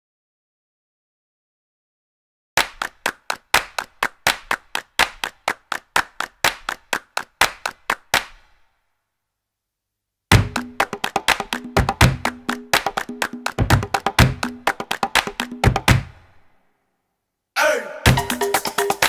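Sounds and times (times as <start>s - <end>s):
rhythmic sharp claps: 2.6s - 8.6s, 10.3s - 16.3s, 18.1s - 19.0s
percussive music: 10.3s - 16.4s, 18.0s - 19.0s.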